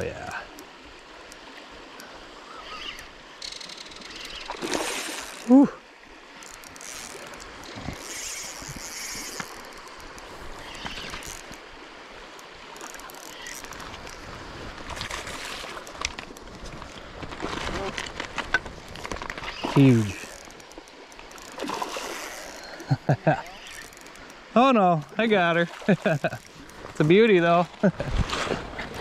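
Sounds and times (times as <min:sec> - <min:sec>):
fish splashing at water surface: 0:04.4 - 0:05.5
man exclaiming: 0:05.5 - 0:05.8, 0:19.8 - 0:20.2.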